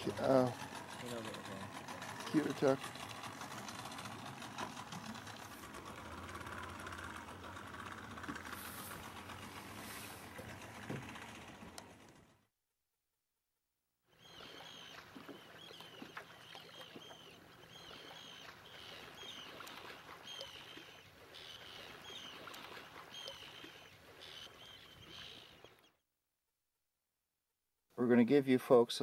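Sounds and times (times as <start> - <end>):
high hooked bird calls: 0.0 - 4.5, 14.1 - 26.0.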